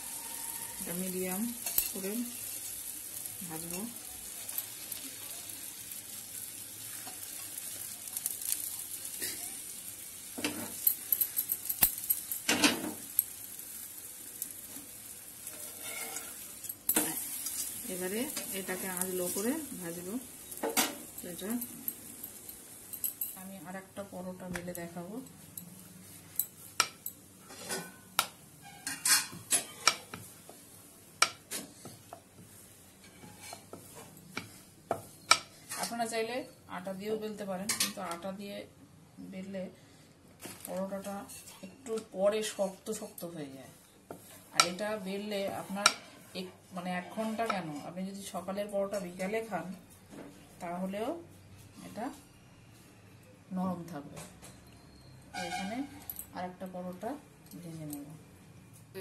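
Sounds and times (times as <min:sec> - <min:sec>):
oil sizzling and crackling: 0:00.0 - 0:38.4.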